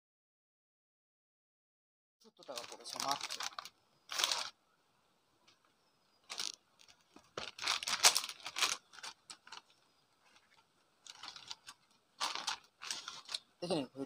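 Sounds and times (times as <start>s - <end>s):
paper envelope rustling: 2.4s - 4.6s, 6.3s - 13.5s.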